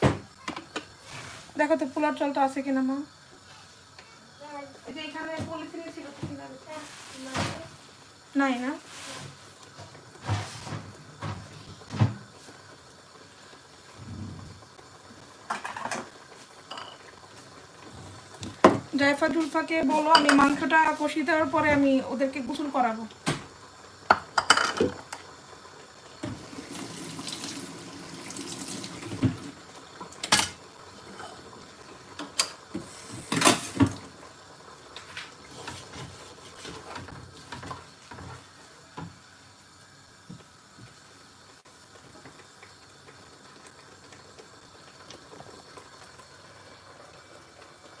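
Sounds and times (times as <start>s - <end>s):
curry simmering crackle: 0.3s - 48.0s
kitchen tap running: 9.8s - 39.2s.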